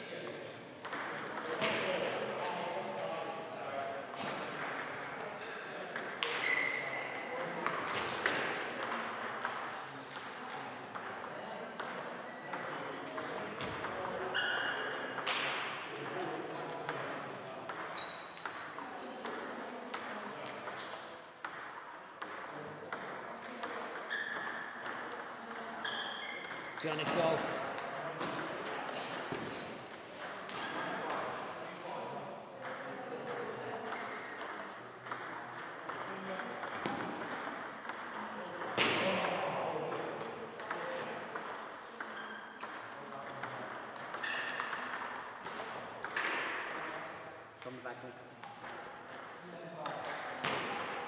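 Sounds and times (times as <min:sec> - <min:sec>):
table tennis balls clicking: 0:00.2 - 0:02.6, 0:03.8 - 0:05.3, 0:05.9 - 0:31.4, 0:32.6 - 0:47.0
short squeak: 0:06.4 - 0:07.0, 0:18.0 - 0:18.4, 0:25.8 - 0:26.5.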